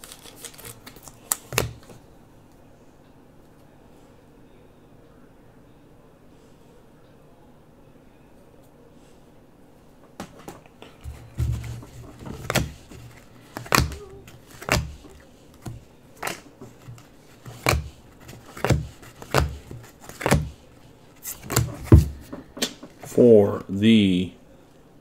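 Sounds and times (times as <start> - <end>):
trading cards slapping and sliding: 10.2 - 23.1.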